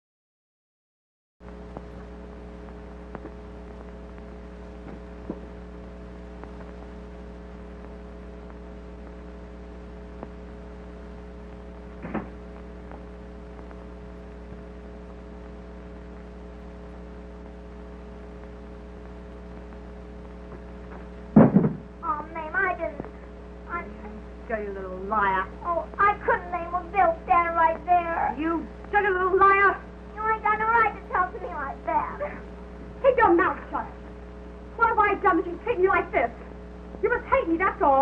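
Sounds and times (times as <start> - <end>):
low hum with overtones: 1.4 - 38.0
faint clicks: 2.6 - 5.4.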